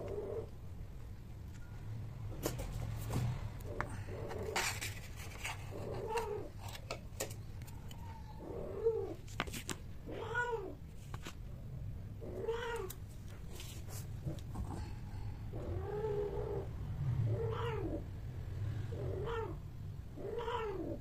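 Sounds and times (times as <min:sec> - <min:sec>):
cat mating calls: 0:18.9 - 0:21.0.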